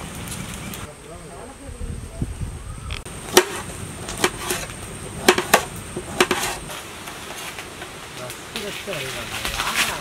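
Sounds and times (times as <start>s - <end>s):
knife chopping carrots on metal: 3.3s - 6.6s.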